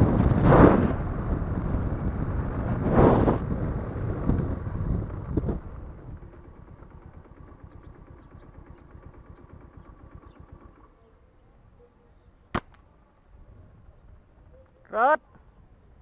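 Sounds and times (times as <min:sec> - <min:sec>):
vehicle engine running: 0:00.0 - 0:11.7.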